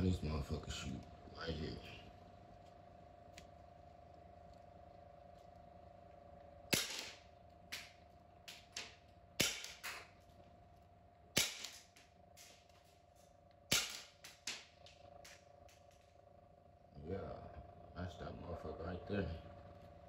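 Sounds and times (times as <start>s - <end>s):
airsoft pistol shots: 6.7s - 10.1s, 11.4s - 12.6s, 13.7s - 14.8s.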